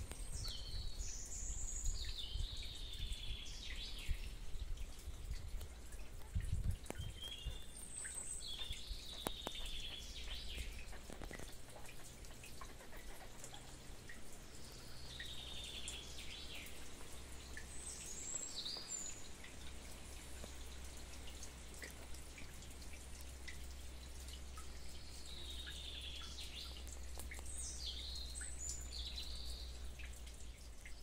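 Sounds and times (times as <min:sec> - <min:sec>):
songbird singing with falling trill: 0:00.0 - 0:04.4, 0:06.8 - 0:11.3, 0:17.4 - 0:19.3.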